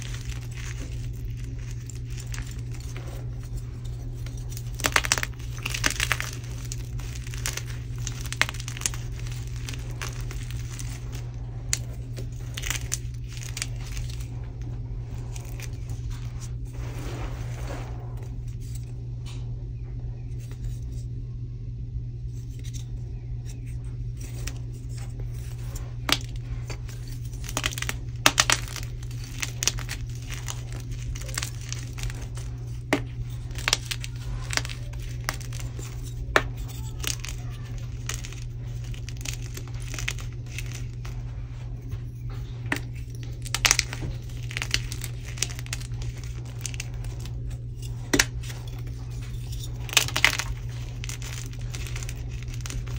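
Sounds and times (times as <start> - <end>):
chalk crunching and snapping: 0.0 - 18.9, 23.5 - 52.9
steady low hum: 0.0 - 52.9.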